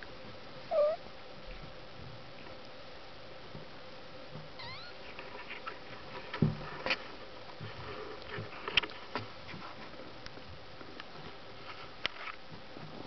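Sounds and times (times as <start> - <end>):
kitten squeak: 0.7 - 1.0, 4.6 - 5.0.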